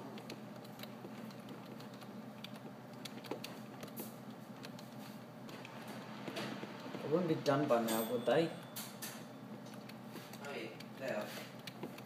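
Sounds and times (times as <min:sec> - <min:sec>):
faint steady hum: 0:00.0 - 0:12.0
keyboard keys clicking: 0:00.1 - 0:04.0, 0:04.6 - 0:05.8.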